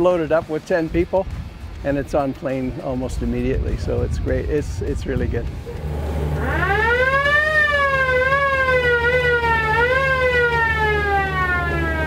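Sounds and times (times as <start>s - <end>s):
boat engine whining: 5.6s - 12.0s.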